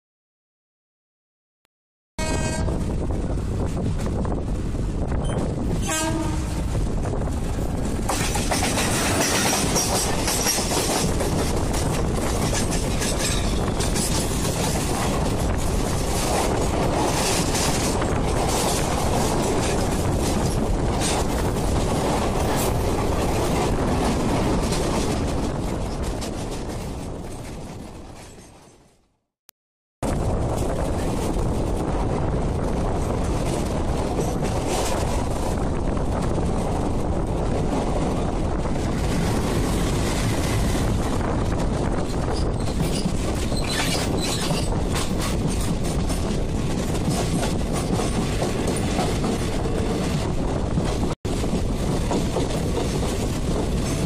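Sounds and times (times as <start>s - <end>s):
train horn: 2.2s - 3.0s, 5.8s - 6.8s
train wheel and air rush: 2.8s - 28.6s, 30.0s - 54.0s
clickety-clack of rail joints: 3.5s - 4.4s, 5.0s - 29.0s, 32.6s - 54.0s.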